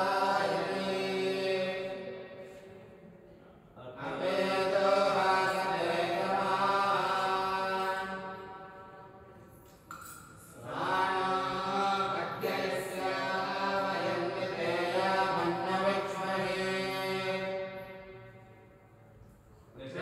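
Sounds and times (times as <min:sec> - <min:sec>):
person chanting: 0:00.0 - 0:18.7.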